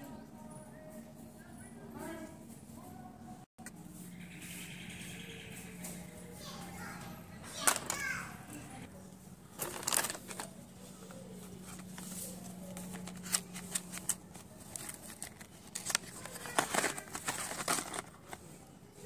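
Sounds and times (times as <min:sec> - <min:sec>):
packaging rustling and crinkling: 0:09.6 - 0:10.6, 0:11.5 - 0:18.5.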